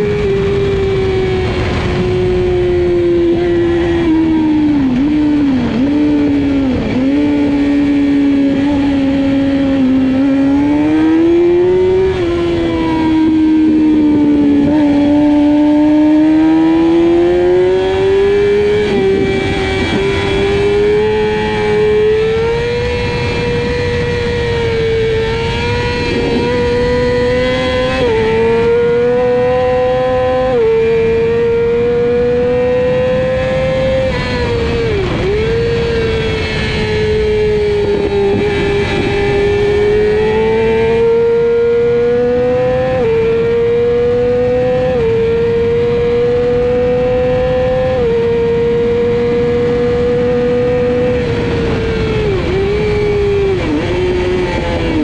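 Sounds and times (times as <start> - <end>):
wind rushing: 0.0 - 41.2
motorbike engine at high revs: 0.0 - 55.0.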